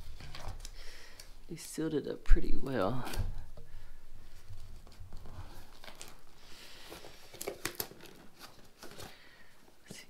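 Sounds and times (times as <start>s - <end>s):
cardboard tearing and crinkling: 4.4s - 9.2s
sharp cracks and snaps: 7.3s - 9.0s.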